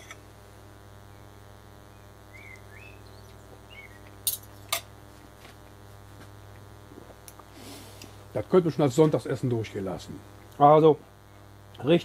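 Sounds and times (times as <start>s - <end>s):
low steady hum: 0.0s - 12.0s
faint bird chirps: 1.9s - 4.2s.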